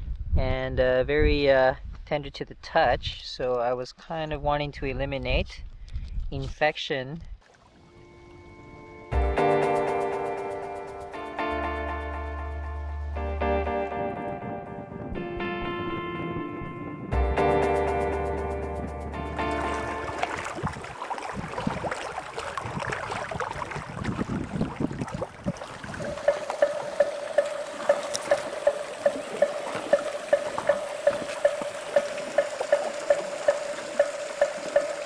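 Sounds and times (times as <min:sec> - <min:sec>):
music: 0:08.0 - 0:20.5
held tone with sharp ticks: 0:26.0 - 0:35.0.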